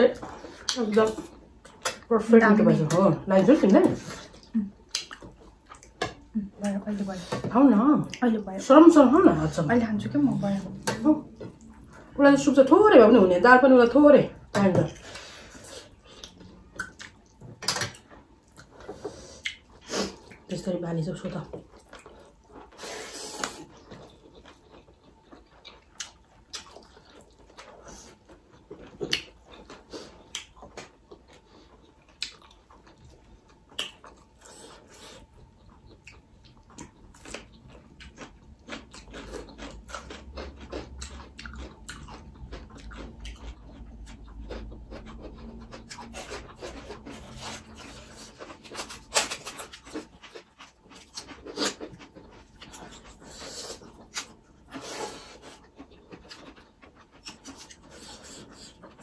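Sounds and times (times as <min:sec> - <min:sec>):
chewing and lip smacks: 0:04.4 - 0:06.2, 0:15.9 - 0:20.5, 0:23.5 - 0:59.0.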